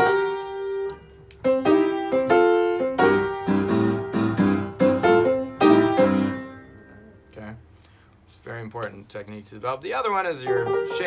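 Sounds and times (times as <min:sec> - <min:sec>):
digital piano blues: 0:00.0 - 0:07.6, 0:10.0 - 0:11.0.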